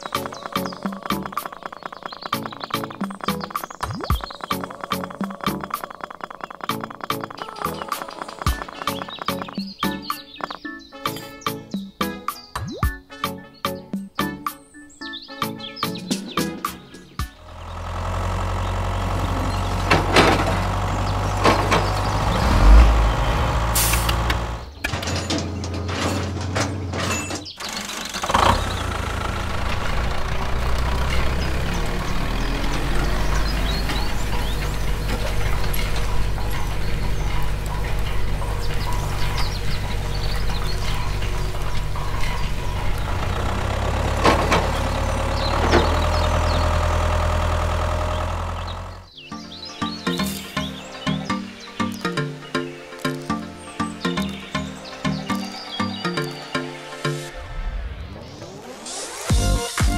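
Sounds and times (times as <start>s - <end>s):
sharp clicks: 0.0s - 10.6s, 23.8s - 24.9s
model tractor motor hum: 17.4s - 25.6s, 26.8s - 49.1s.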